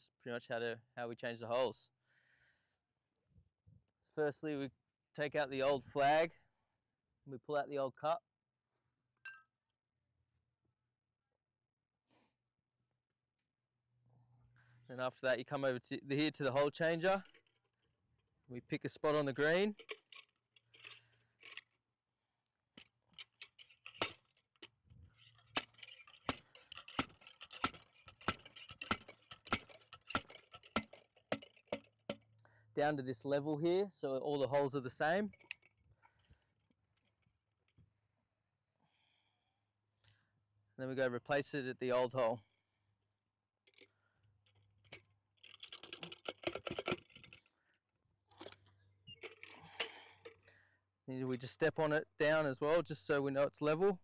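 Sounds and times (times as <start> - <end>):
hole cutter clicking and crunching: 25.3 - 32.2.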